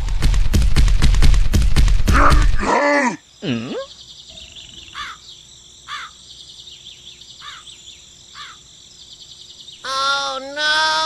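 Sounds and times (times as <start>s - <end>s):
high insect trill: 2.2s - 11.0s
bird chirps: 3.2s - 11.0s.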